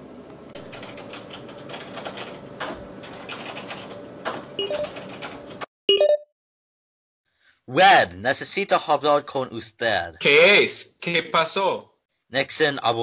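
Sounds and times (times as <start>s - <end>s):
keyboard typing clicks: 0.7s - 5.6s.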